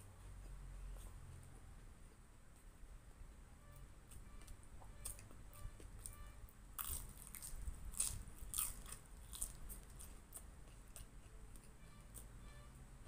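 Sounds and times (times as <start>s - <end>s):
crunching and chewing spring roll: 4.0s - 12.4s.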